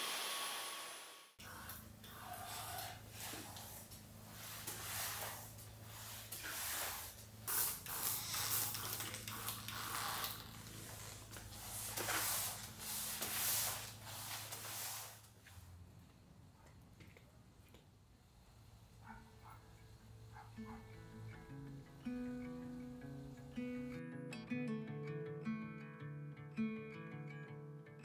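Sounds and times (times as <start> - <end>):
hissing sprays: 0.0 - 15.4
mop swishing on wood floor: 1.4 - 15.8.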